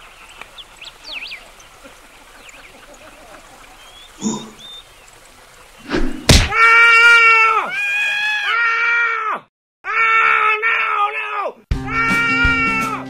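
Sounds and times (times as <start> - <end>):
person wailing: 6.5 - 13.0.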